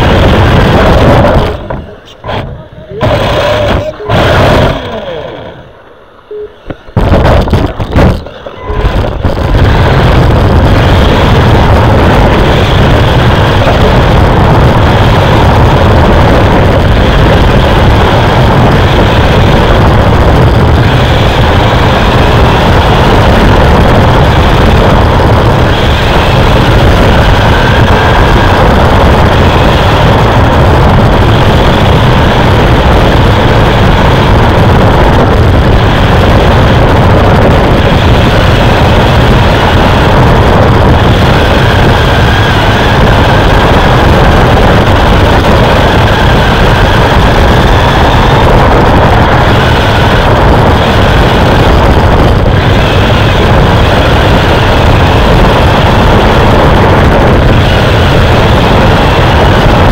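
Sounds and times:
loud rough truck engine: 0:00.0 - 0:05.9.

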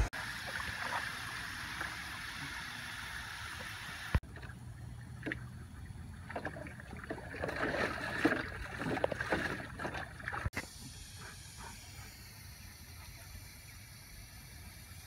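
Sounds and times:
water splashing in a paddling pool: 0:00.0 - 0:10.6.

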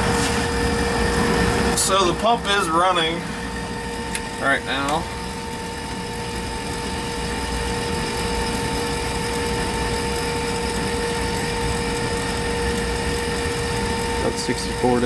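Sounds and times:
electric pump humming: 0:00.0 - 0:15.0.

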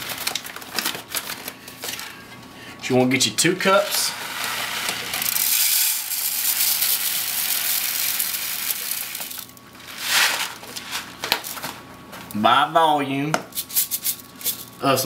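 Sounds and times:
rice grains pouring into cup: 0:03.9 - 0:10.6.

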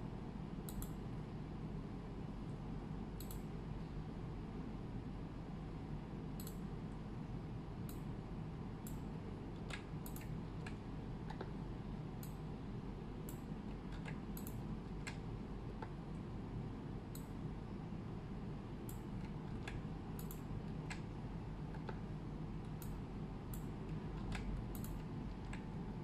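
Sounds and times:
low background hum: 0:00.0 - 0:26.0.

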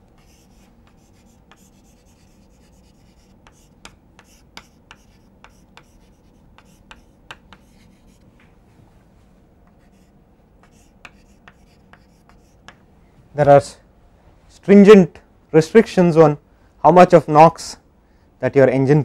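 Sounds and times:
chalk tapping on blackboard: 0:00.2 - 0:08.2, 0:09.7 - 0:12.8
chalk scratching on blackboard: 0:00.2 - 0:08.3, 0:09.7 - 0:12.8.

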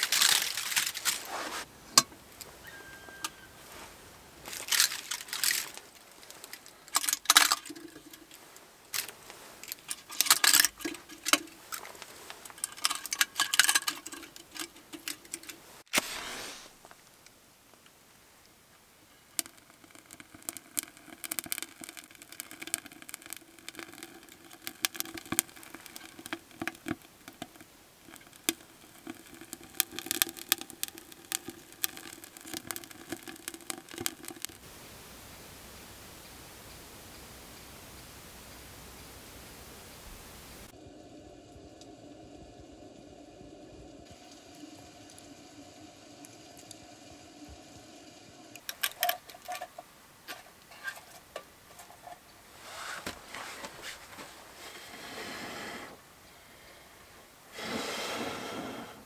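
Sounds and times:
clicks and rustles of handling: 0:00.0 - 0:02.6, 0:03.2 - 0:16.1, 0:48.6 - 0:54.4
cones crackling in fire: 0:00.0 - 0:59.0
match struck: 0:15.9 - 0:17.0.

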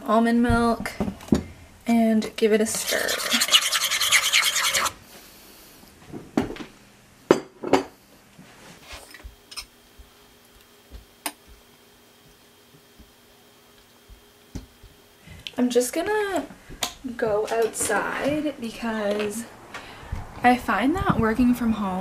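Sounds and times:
metal spoon scraping a bowl: 0:02.7 - 0:04.9.

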